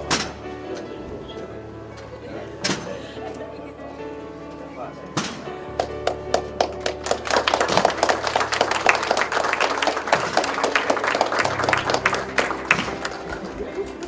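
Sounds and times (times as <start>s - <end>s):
faint music: 0.0s - 14.0s
crowd applauding: 5.7s - 14.0s.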